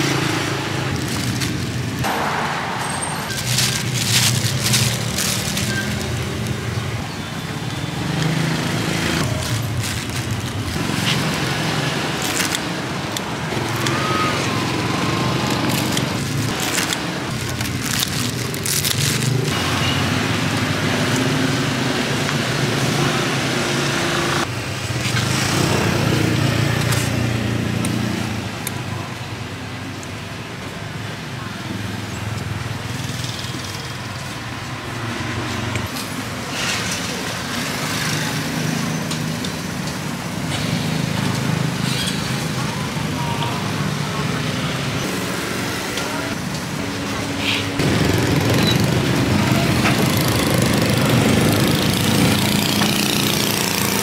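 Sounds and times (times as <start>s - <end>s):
plastic bags rustling: 0.0s - 2.1s, 2.8s - 19.6s
motorbike and car engines passing: 0.0s - 28.5s, 36.5s - 54.0s.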